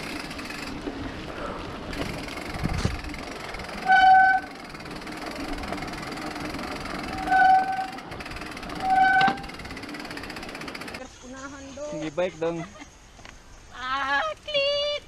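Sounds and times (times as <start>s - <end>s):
mountain bike riding noise: 0.0s - 15.0s
wind on microphone: 1.9s - 3.2s.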